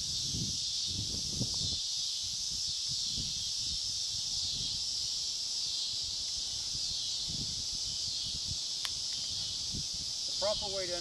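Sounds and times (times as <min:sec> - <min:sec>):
insects chorus: 0:00.0 - 0:11.0.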